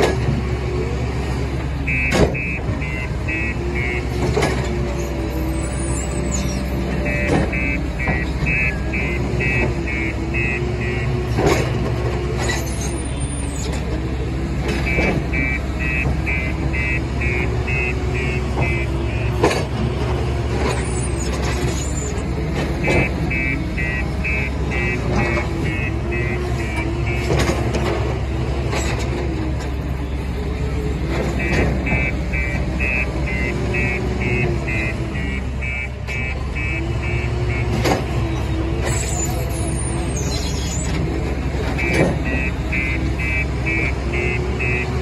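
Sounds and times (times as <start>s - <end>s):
diesel engine running: 0.0s - 45.0s
reversing alarm beeping: 1.8s - 4.2s, 4.9s - 11.4s, 14.8s - 19.6s, 20.7s - 22.2s, 22.8s - 27.7s, 31.3s - 38.0s, 41.7s - 45.0s.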